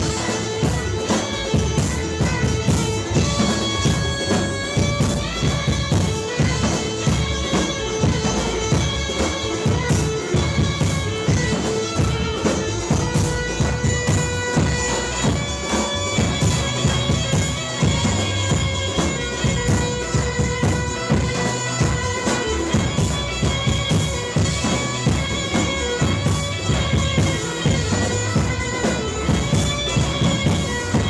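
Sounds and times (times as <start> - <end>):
bagpipe playing dance tune: 0.0 - 31.0
drum beat: 0.0 - 31.0.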